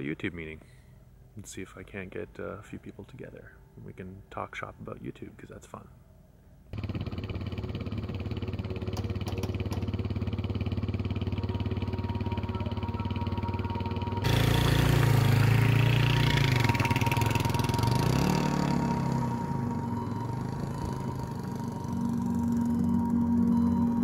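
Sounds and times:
dirt bike engine idling and revving: 6.8s - 24.0s.

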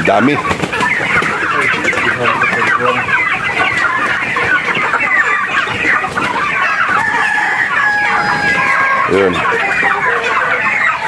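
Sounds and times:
chickens clucking: 0.0s - 11.0s.

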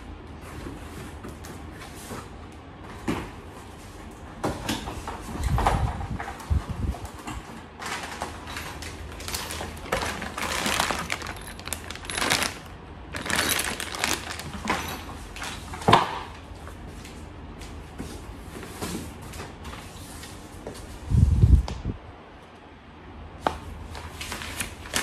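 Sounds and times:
cardboard rustling: 7.8s - 15.8s
plastic bag crinkling: 7.8s - 15.8s.

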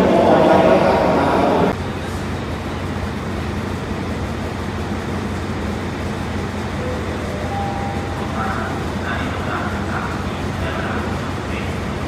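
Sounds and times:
locomotive engine humming: 0.0s - 12.0s.

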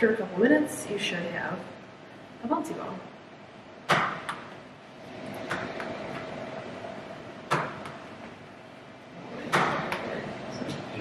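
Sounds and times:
ball bouncing on a tabletop: 7.5s - 8.0s.

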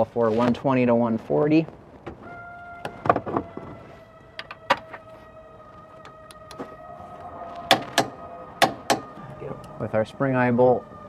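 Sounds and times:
high motor whine: 2.2s - 11.0s.

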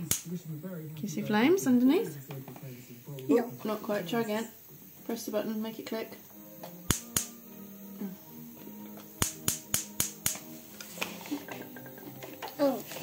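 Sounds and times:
gas hob spark igniter clicking: 0.0s - 0.3s, 6.6s - 7.6s, 8.8s - 13.0s.

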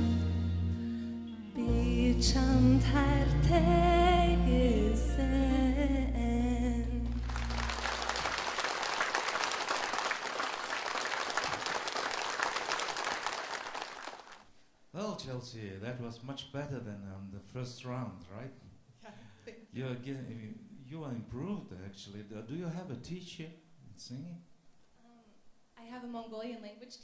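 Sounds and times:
piano accompaniment: 0.0s - 5.8s
woman singing: 1.5s - 7.2s
audience applause: 7.1s - 14.5s.

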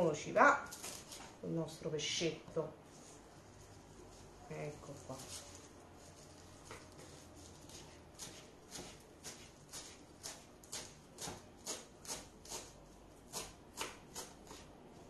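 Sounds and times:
knife chopping on wooden board: 6.7s - 12.7s, 13.3s - 14.7s.

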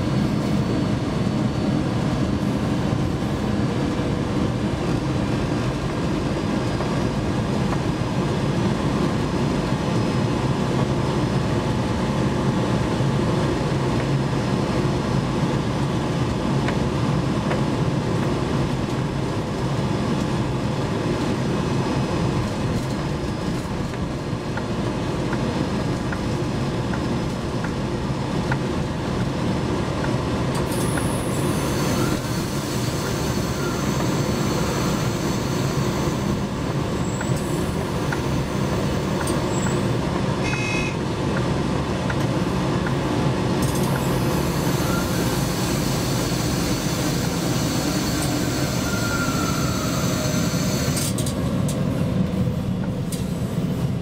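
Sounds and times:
wheel and rail rumble: 0.0s - 54.0s
high-pitched wheel squeal: 30.8s - 37.6s, 39.0s - 41.0s, 44.0s - 51.2s.

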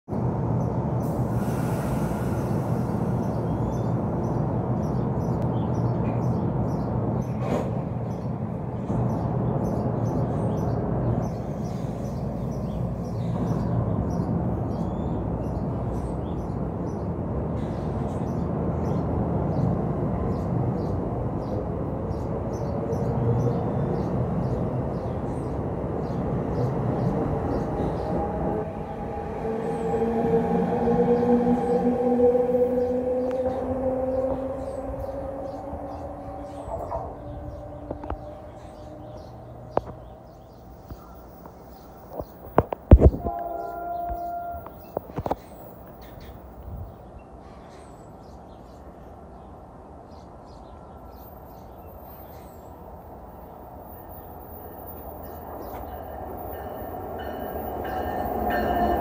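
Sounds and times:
train humming and rumbling: 0.1s - 47.2s, 49.1s - 59.0s.

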